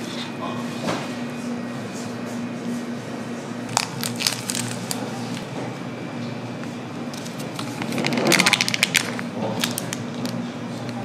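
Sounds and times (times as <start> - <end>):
steady background hum: 0.0 - 11.0
plastic sachet crinkling: 3.7 - 5.4, 7.6 - 10.4.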